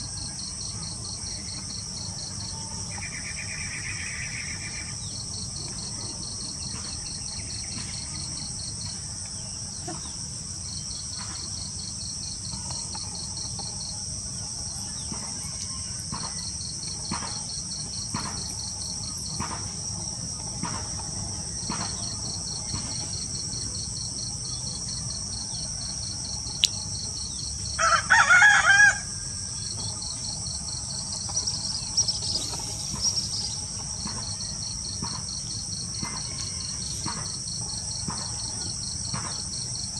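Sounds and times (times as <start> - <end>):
crickets and insects chirping: 0.0 - 39.9
rooster crowing: 27.7 - 29.5, 36.0 - 37.1.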